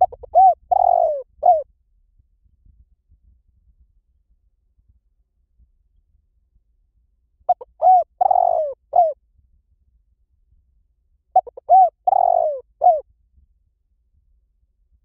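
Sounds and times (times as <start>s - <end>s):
dove cooing: 0.0s - 1.6s, 7.5s - 9.2s, 11.4s - 13.0s.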